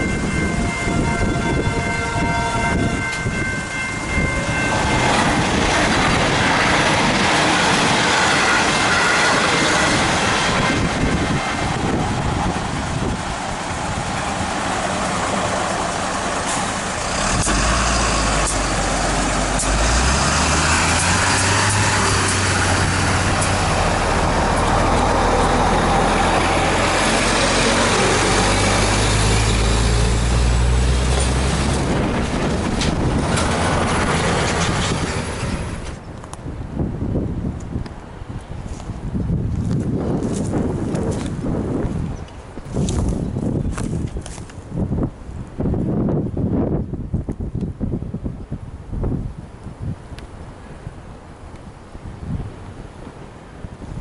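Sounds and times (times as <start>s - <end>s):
train passing: 0.0s - 37.4s
diesel truck engines: 4.5s - 36.8s.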